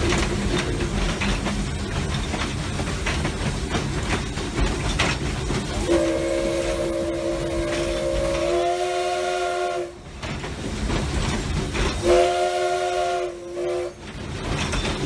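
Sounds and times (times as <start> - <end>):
locomotive running rumble: 0.0 - 15.0
steam locomotive chime whistle: 5.7 - 10.0, 12.0 - 14.0.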